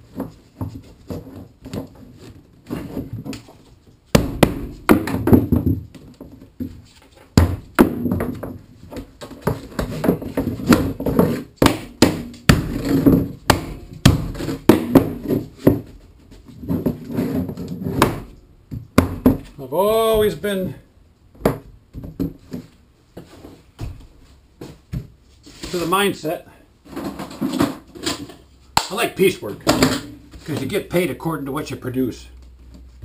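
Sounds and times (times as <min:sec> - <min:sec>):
plastic tubes knocking on wood: 0:04.1 - 0:06.7, 0:07.3 - 0:15.9.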